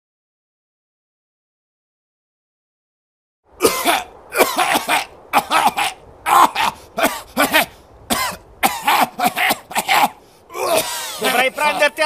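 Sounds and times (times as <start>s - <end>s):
man coughing: 3.6s - 11.8s.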